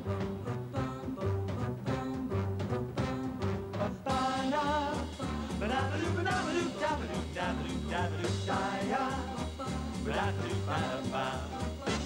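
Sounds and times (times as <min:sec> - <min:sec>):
up-tempo swing music: 0:00.0 - 0:12.0.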